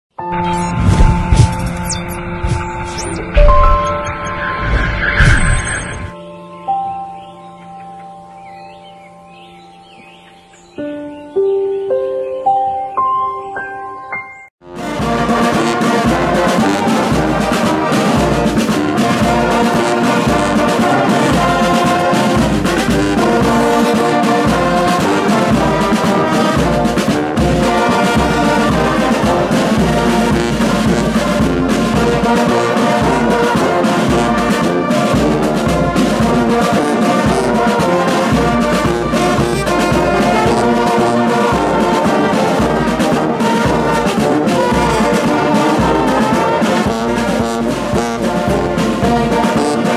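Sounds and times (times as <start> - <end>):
brass band playing: 14.6 - 49.9
bass drum beat: 14.8 - 32.4, 33.1 - 49.8.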